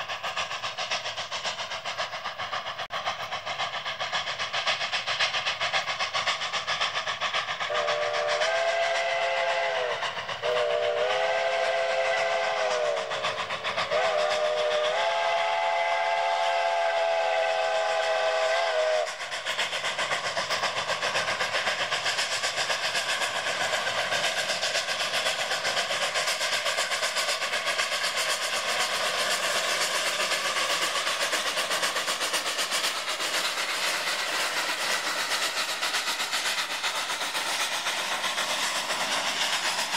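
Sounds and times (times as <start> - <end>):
locomotive exhaust chuffing: 0.0 - 39.9
steam locomotive chime whistle: 7.7 - 13.2, 13.9 - 19.1.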